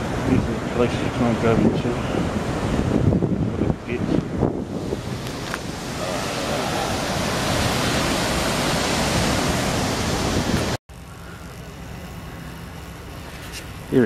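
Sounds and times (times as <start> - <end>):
water rushing: 4.5 - 10.8.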